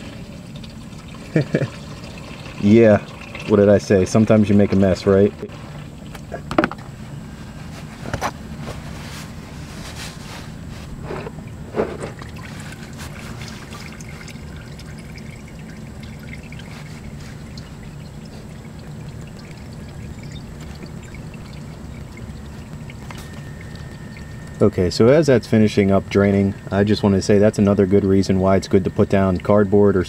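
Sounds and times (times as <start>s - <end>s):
oil draining into plastic pan: 0.0s - 6.8s, 11.2s - 24.7s, 28.8s - 29.8s.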